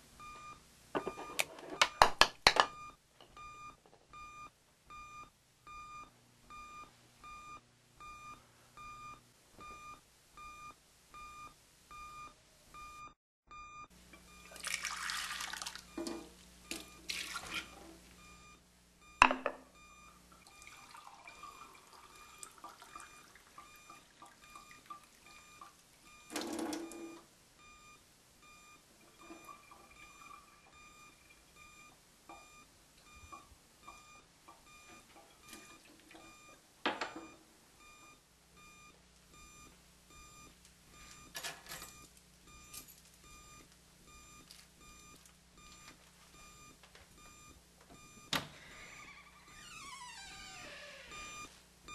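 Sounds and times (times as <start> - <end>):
tap water running into sink: 14.6 - 15.8
alarm clock beeping: 51.1 - 51.9.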